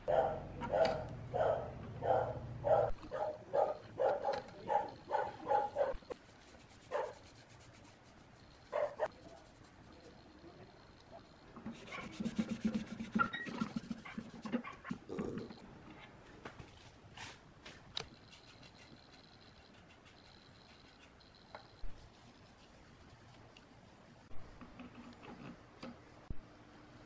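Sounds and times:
dog barking: 0.0 - 6.1, 6.9 - 7.2, 8.7 - 9.2
cloth rubbing on steel plate: 6.1 - 9.8, 11.7 - 14.5.

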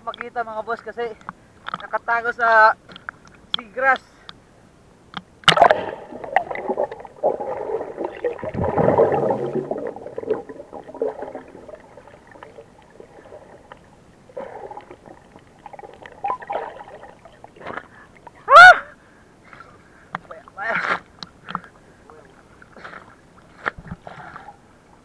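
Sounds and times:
underwater knocks and rustles: 5.2 - 18.4, 21.1 - 24.4
rush of air and water: 5.5 - 18.3
underwater bubbling and rumbling: 5.5 - 18.4.

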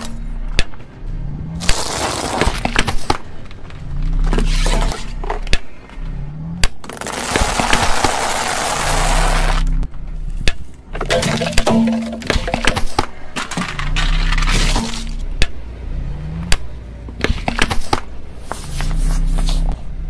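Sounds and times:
crunching: 1.5 - 15.6
objects crushed under car tyre: 1.6 - 5.8, 6.6 - 9.8, 10.9 - 15.6.

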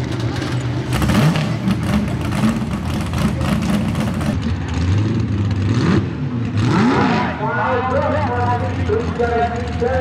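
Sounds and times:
truck engine revving: 0.0 - 7.5.

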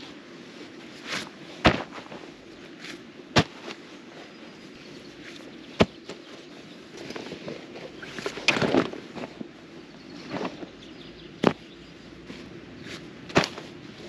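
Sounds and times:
gear thumping onto grass: 1.1 - 3.9, 5.2 - 6.4, 10.2 - 14.0.

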